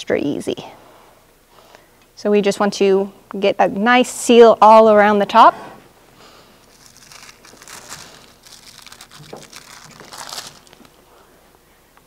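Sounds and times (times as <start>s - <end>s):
faint crinkling and rustling: 6.2s - 11.3s.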